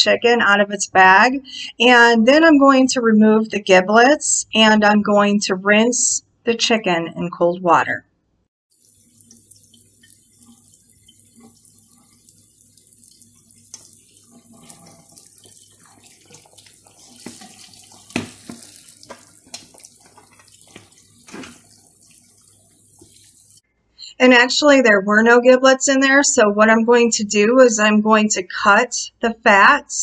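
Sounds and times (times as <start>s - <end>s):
tap water running: 8.7s - 23.6s
water splashes: 8.7s - 23.6s.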